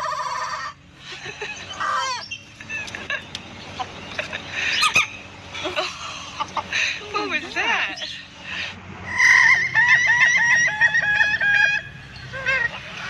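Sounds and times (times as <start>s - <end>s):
chickens clucking: 0.0s - 7.0s, 8.0s - 13.0s
rooster crowing: 9.1s - 12.7s.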